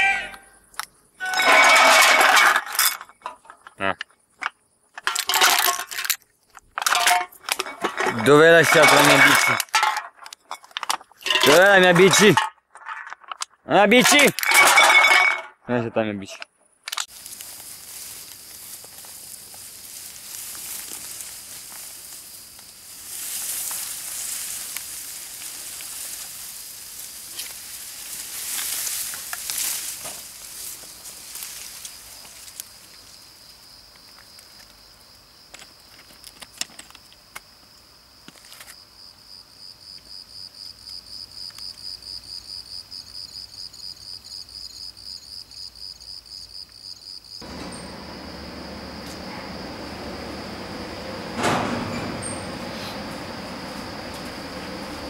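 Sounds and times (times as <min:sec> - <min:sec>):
cricket chirping: 0:14.0 - 0:55.0
rustling: 0:17.0 - 0:32.8.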